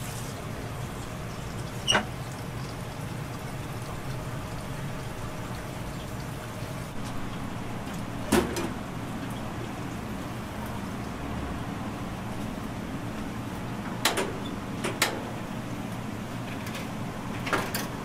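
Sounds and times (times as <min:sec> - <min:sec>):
fish sizzling and crackling: 0:00.0 - 0:11.3.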